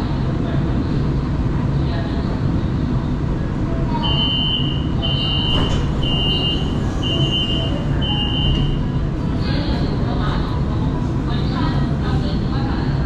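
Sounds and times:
low train rumble: 0:00.0 - 0:13.0
high door warning beeps: 0:04.0 - 0:08.9.

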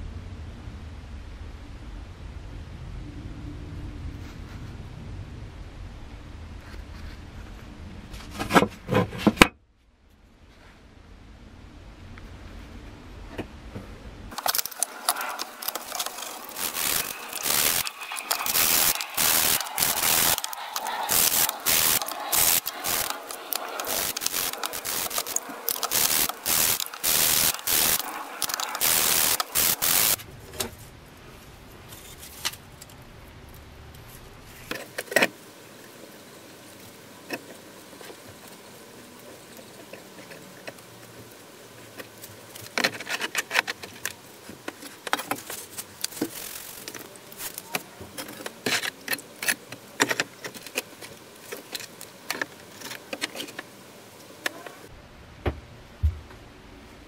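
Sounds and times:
small clicks: 0:14.3 - 0:30.2
wire brush scrubbing wet metal: 0:14.3 - 0:30.2.

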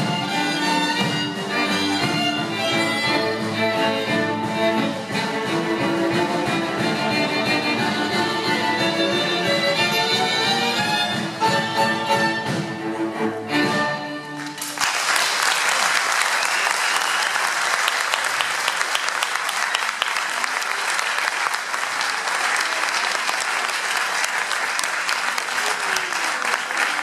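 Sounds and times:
audience applause: 0:14.3 - 0:27.0.

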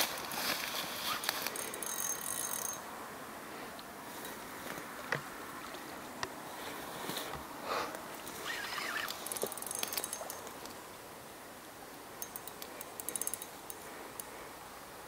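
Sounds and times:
rustling: 0:00.0 - 0:01.8
steady low hiss: 0:00.0 - 0:15.0
spinning reel clicking: 0:01.5 - 0:02.8, 0:08.4 - 0:10.5, 0:12.2 - 0:13.8.

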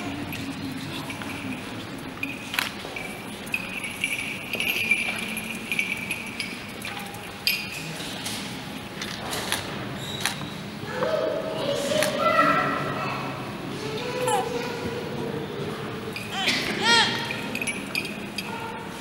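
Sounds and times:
metallic jingling and clinks: 0:00.0 - 0:09.2, 0:14.2 - 0:14.6, 0:16.0 - 0:19.0
low murmur in room: 0:00.0 - 0:19.0.

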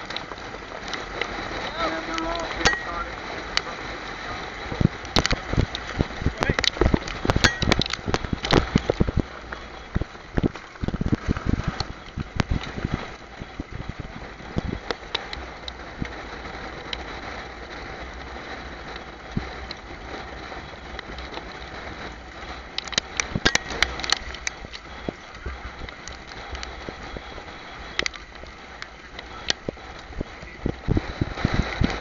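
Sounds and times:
wind on microphone: 0:00.0 - 0:32.0
sulky wheels knocking and rattling: 0:04.6 - 0:32.0.

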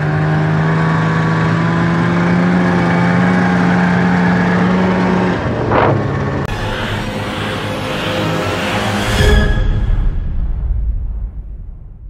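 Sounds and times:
snowmobile engine running: 0:00.0 - 0:09.0
rushing noise: 0:05.0 - 0:12.0.

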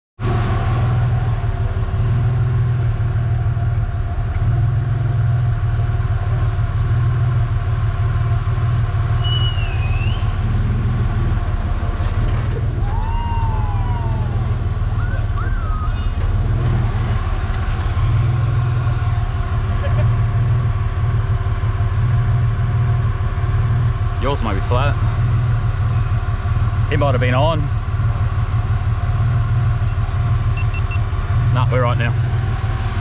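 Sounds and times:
truck engine rumbling: 0:00.2 - 0:33.0.

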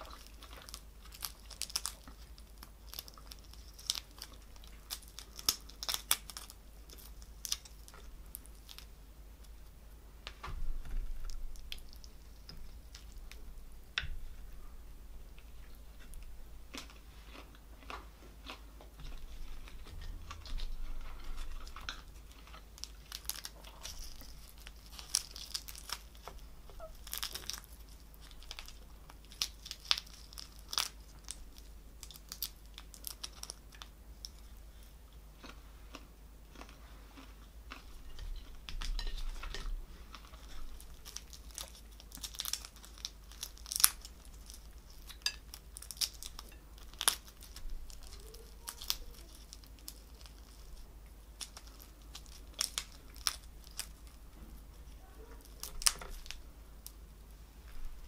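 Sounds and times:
prawn shells cracking: 0:00.0 - 0:08.9, 0:19.7 - 0:34.4, 0:37.7 - 0:54.2, 0:54.8 - 0:57.0.

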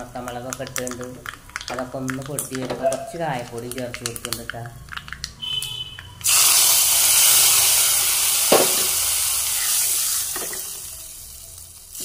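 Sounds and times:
hot oil sizzling in a pot: 0:06.2 - 0:12.0.

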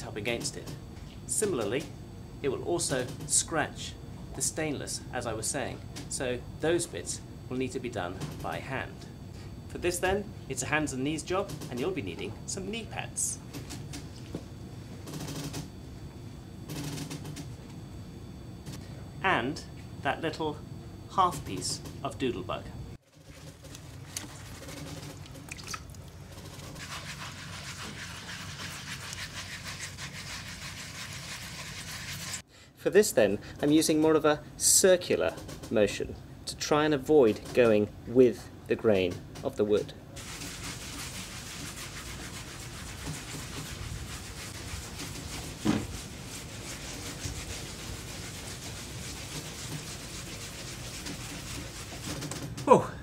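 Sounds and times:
liquid dripping and splashing: 0:23.2 - 0:26.4
scrub pad rasping on wet wood: 0:26.6 - 0:32.4, 0:40.2 - 0:52.3.

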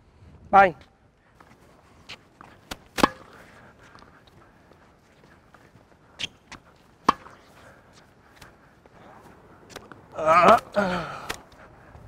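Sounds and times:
tennis ball bouncing: 0:02.1 - 0:04.1, 0:06.2 - 0:07.5
tennis ball on racket strings: 0:02.1 - 0:04.1, 0:06.2 - 0:07.5.

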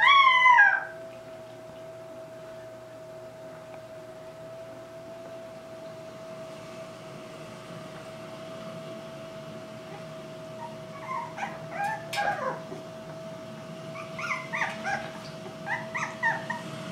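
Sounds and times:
puppies whimpering and yipping: 0:00.0 - 0:01.9, 0:09.9 - 0:13.2, 0:13.9 - 0:16.9
steady hum: 0:00.0 - 0:16.9.

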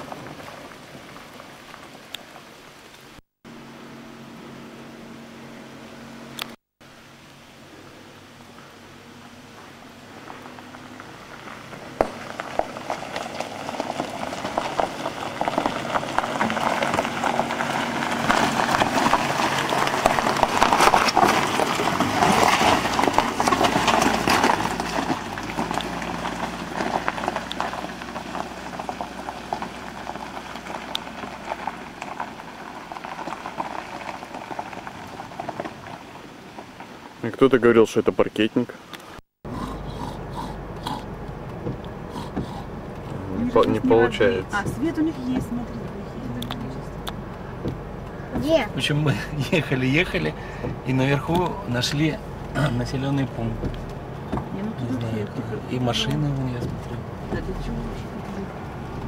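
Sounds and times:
tyres crunching on gravel: 0:00.0 - 0:03.2, 0:08.5 - 0:37.9, 0:38.8 - 0:59.0
low engine hum: 0:00.0 - 0:37.2, 0:39.4 - 0:59.0.

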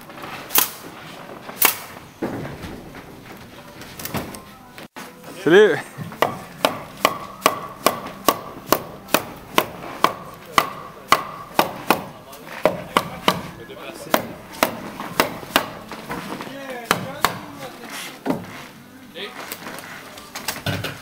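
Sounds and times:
hammer striking wood: 0:06.0 - 0:15.9, 0:16.9 - 0:17.6.

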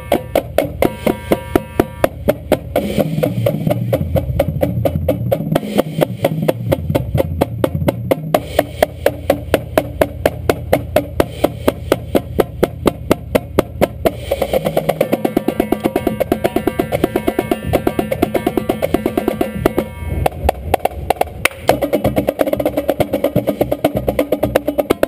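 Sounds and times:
sharp drum strokes: 0:00.0 - 0:25.0
tuned bass drums: 0:00.0 - 0:25.0.

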